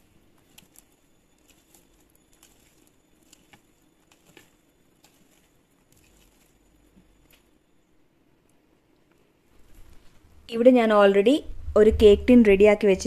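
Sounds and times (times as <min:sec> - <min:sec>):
spatula folding cake batter: 0:00.0 - 0:07.6.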